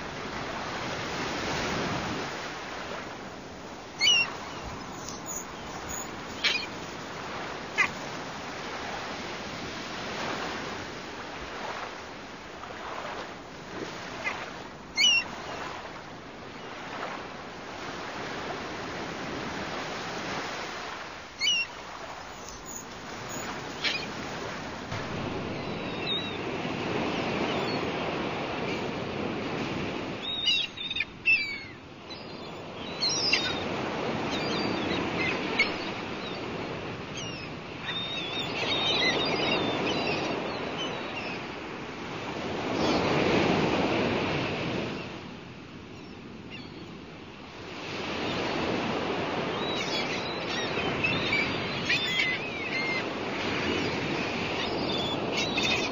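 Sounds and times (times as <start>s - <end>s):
waves breaking on beach: 0.0s - 55.9s
birds chirping: 3.9s - 11.8s, 21.4s - 29.0s, 30.1s - 41.6s, 48.0s - 55.9s.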